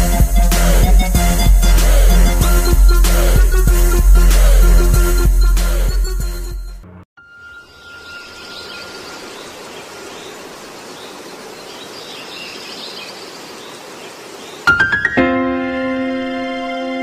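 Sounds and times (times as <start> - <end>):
faint bird chirps: 7.2 - 14.7
outdoor background noise: 7.3 - 14.7.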